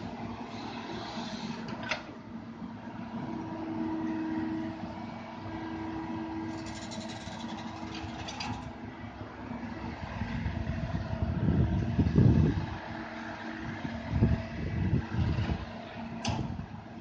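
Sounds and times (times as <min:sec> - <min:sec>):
excavator diesel engine rumbling: 0:00.0 - 0:17.0
fast clicking and rattling: 0:06.5 - 0:08.7.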